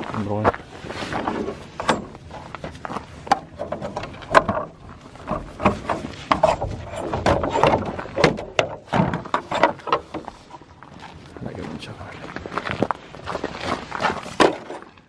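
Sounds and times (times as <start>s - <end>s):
plastic knocks clicks and scrapes: 1.2s - 10.6s.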